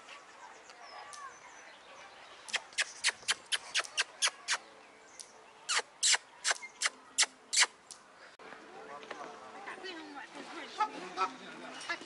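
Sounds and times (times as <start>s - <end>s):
otters chirping: 2.5s - 7.8s.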